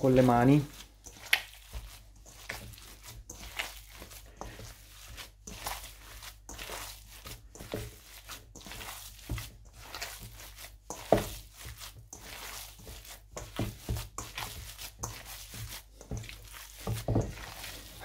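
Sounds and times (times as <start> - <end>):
hands squishing raw meat: 0.0 - 18.0.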